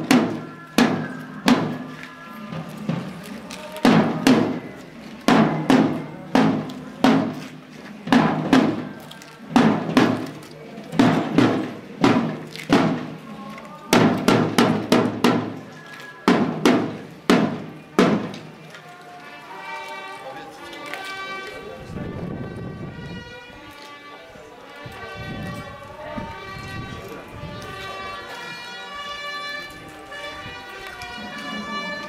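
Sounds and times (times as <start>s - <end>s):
marching drum beaten with sticks: 0.0s - 13.3s, 13.9s - 18.6s.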